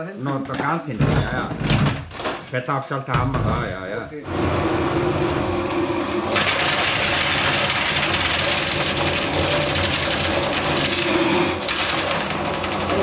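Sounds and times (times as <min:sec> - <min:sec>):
drain cable rattling in pipe: 0:01.0 - 0:02.6, 0:05.6 - 0:13.0.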